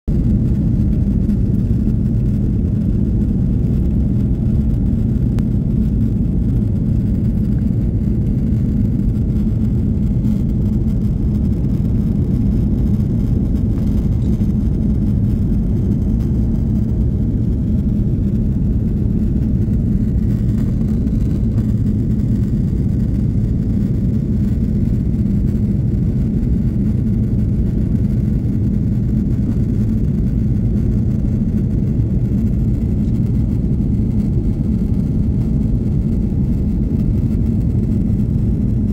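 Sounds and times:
jet airliner cabin rumble: 0.0s - 38.9s.

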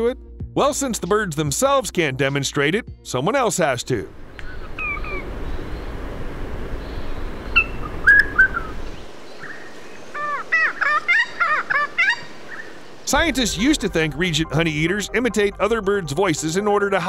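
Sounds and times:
background hiss: 3.9s - 17.0s
bird chirps and song: 4.2s - 16.5s.

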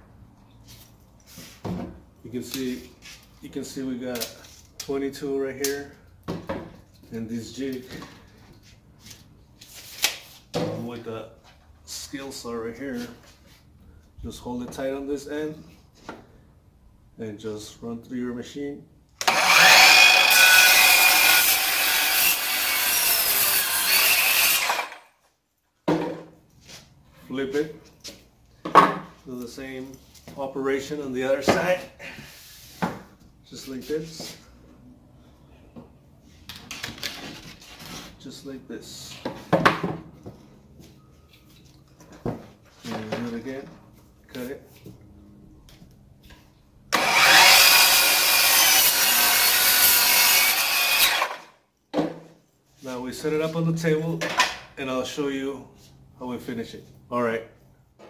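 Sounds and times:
circular saw cutting wood: 19.2s - 25.1s, 46.9s - 51.5s.

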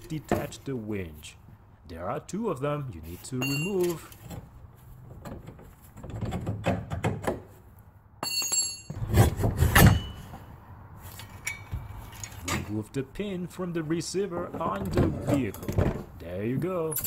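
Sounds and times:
ringing metal clink: 3.4s - 4.1s, 8.2s - 9.0s
metal scraping and clanking: 8.6s - 12.8s.

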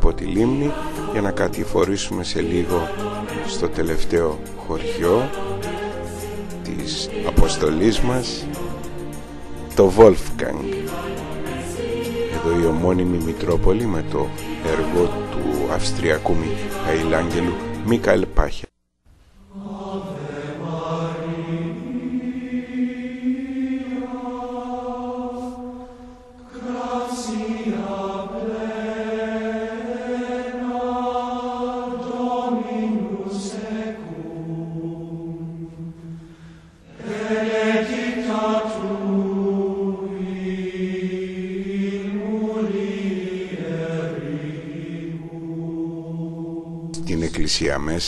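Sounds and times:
men chanting: 0.1s - 8.9s, 9.6s - 18.2s, 36.9s - 47.4s.

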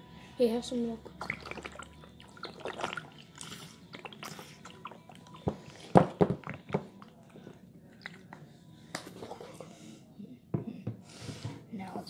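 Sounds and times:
plastic bottle crackling and sputtering: 1.2s - 7.3s.

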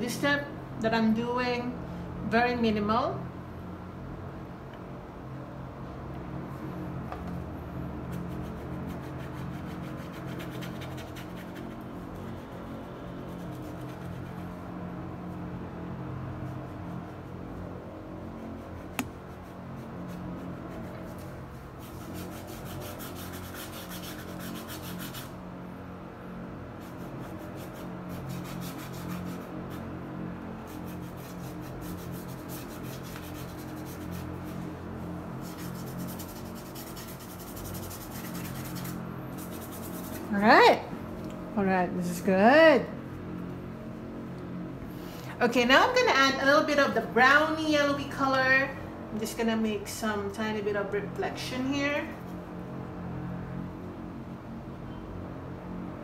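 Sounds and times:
paintbrush scratching on canvas: 8.0s - 14.8s, 16.3s - 25.4s, 26.8s - 30.0s, 30.7s - 40.6s.

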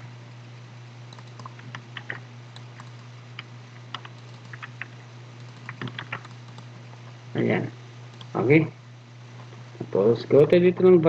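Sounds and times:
steady low hum: 0.0s - 11.0s
computer keyboard typing: 1.1s - 6.7s, 8.1s - 8.4s.

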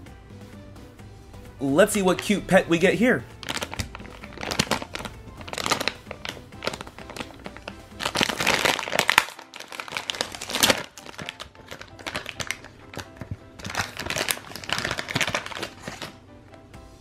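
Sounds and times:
plastic foil packet crinkling: 3.3s - 16.2s.

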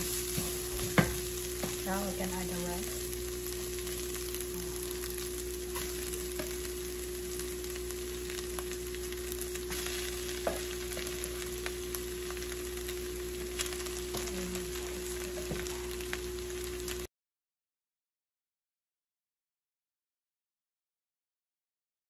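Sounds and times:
food sizzling in a frying pan: 0.0s - 17.1s
steady hum: 0.0s - 17.1s.

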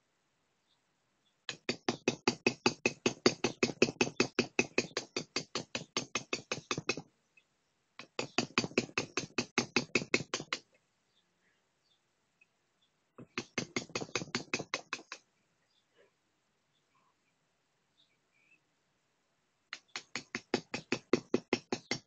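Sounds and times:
hammer tapping chisel into stone: 1.5s - 7.0s, 8.0s - 10.6s, 13.2s - 15.2s, 19.7s - 22.0s.

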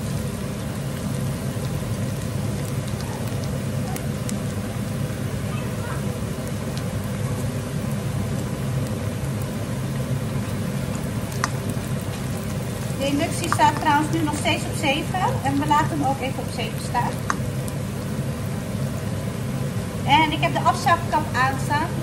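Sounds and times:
onion and garlic sizzling in oil: 0.0s - 22.0s
range hood fan drone: 0.0s - 22.0s.

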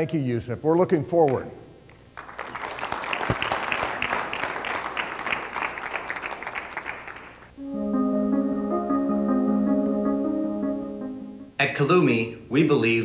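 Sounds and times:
audience clapping: 2.2s - 7.5s
background music with held notes: 7.6s - 11.6s.

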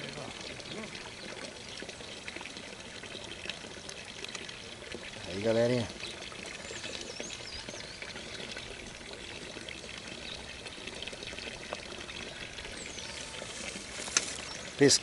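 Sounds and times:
trickling splashing water: 0.0s - 15.0s.

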